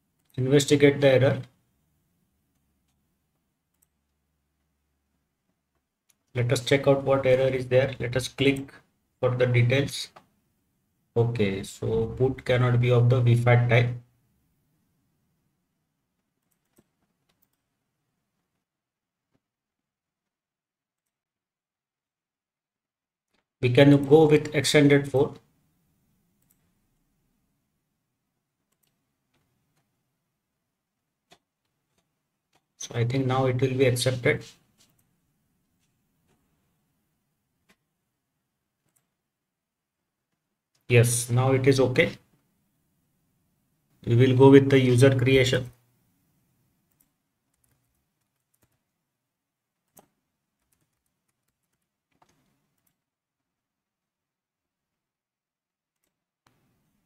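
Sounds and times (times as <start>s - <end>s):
computer mouse clicks: 3.7s - 4.2s, 16.2s - 17.7s, 26.4s - 26.7s, 28.6s - 29.9s, 31.2s - 32.9s, 38.8s - 39.2s, 46.8s - 49.0s, 49.8s - 53.1s, 56.0s - 56.7s
keyboard typing: 3.7s - 4.2s, 16.2s - 17.8s, 28.6s - 29.9s, 38.8s - 39.2s, 46.8s - 49.0s, 49.7s - 53.1s.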